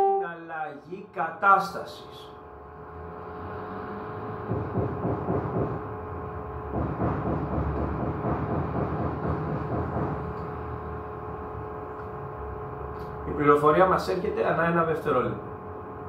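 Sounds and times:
steady hum with held tones: 0.0 - 2.8, 9.4 - 16.0.

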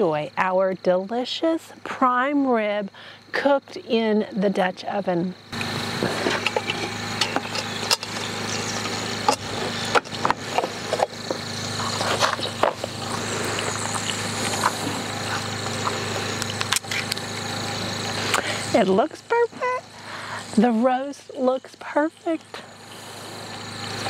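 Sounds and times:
steady hum: 0.0 - 24.0
metal lid clinking and knocking: 6.3 - 8.7.

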